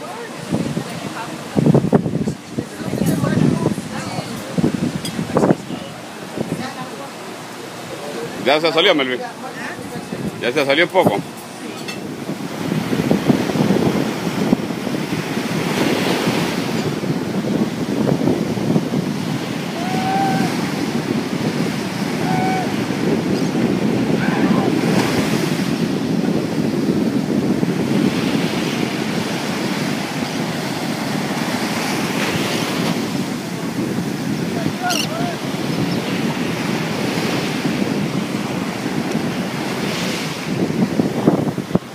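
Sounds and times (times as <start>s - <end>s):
surf breaking on beach: 0.0s - 41.9s
wind buffeting microphone: 0.0s - 41.9s
faint calls: 34.8s - 35.4s.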